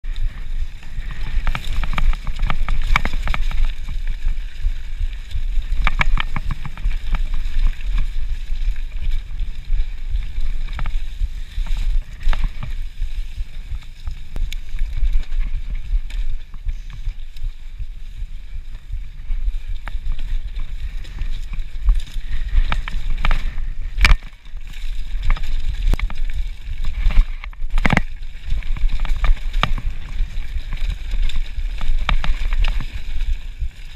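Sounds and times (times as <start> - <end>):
bike clicking and rattling: 0.0 - 33.9
tyres hissing on leaves and dirt: 0.0 - 33.9
wind rumbling on microphone: 0.0 - 33.9.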